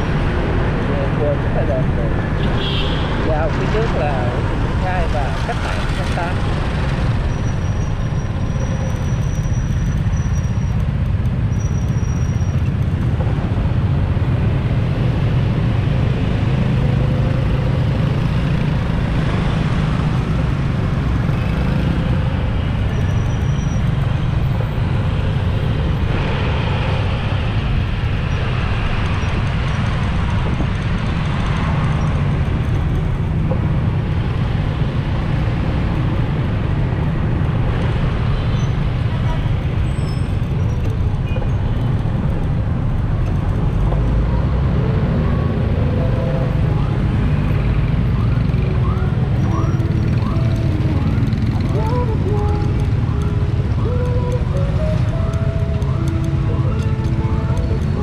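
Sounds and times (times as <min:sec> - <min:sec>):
dense street traffic with motorbikes: 0:00.0 - 0:58.0.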